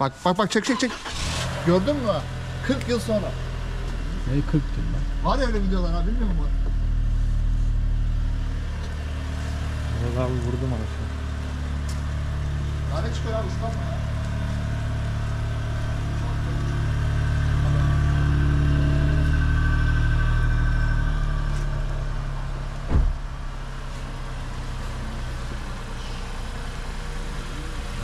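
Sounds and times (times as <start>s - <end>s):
car engine idling: 0.0s - 28.0s
sharp knock: 22.9s - 23.2s.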